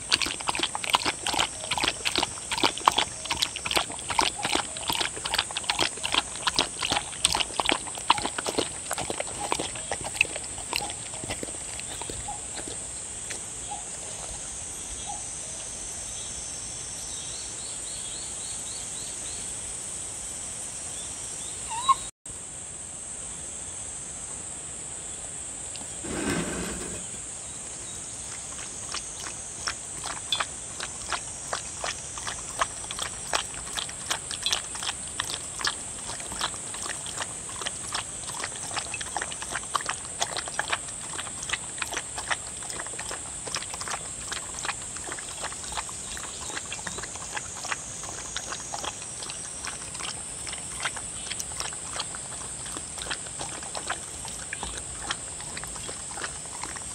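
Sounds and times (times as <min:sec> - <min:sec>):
dog lapping from bowl: 0:00.0 - 0:14.6, 0:27.8 - 0:56.9.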